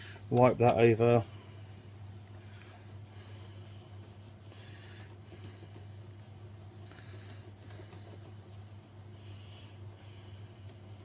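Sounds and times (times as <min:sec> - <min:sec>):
cloth rag rubbing on metal: 0:00.0 - 0:11.0
low hum: 0:00.0 - 0:11.0.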